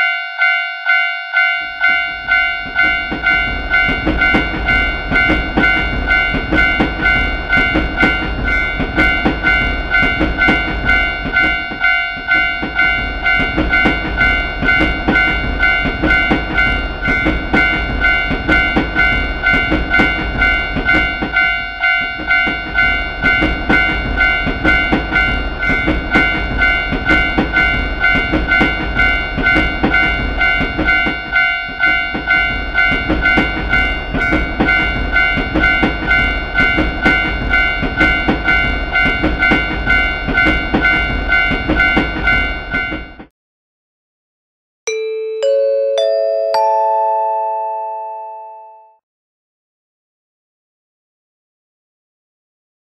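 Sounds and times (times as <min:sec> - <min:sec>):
level crossing bell ringing: 0:00.0 - 0:43.1, 0:44.9 - 0:49.0
train rumble and wheel clatter: 0:01.6 - 0:43.3.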